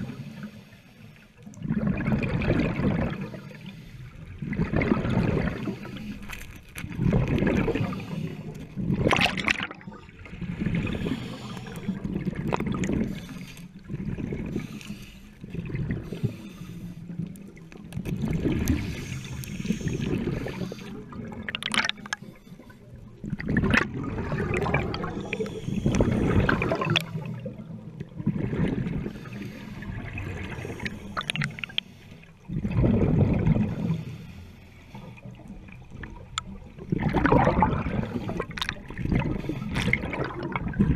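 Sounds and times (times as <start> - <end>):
air bubbles gurgling: 1.4 - 3.6, 4.2 - 14.8, 15.4 - 16.4, 17.0 - 22.2, 22.9 - 31.8, 32.4 - 34.0, 35.3 - 40.9
scuba regulator breathing underwater: 4.9 - 6.5, 7.1 - 9.0, 9.7 - 17.4, 18.4 - 22.9, 24.1 - 27.2, 28.8 - 32.7, 37.2 - 40.8.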